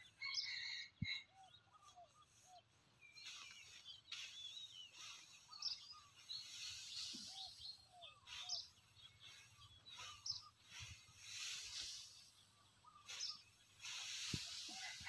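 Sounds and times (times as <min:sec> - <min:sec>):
small birds chirping: 0:00.0 - 0:15.0
straw rustling: 0:06.2 - 0:15.0.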